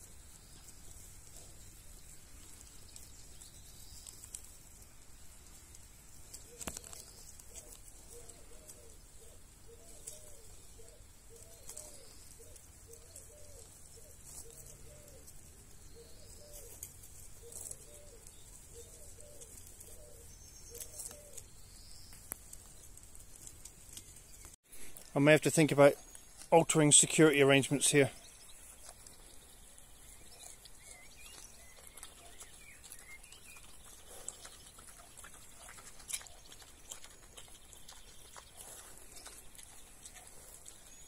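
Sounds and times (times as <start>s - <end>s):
dove cooing: 6.4s - 21.5s.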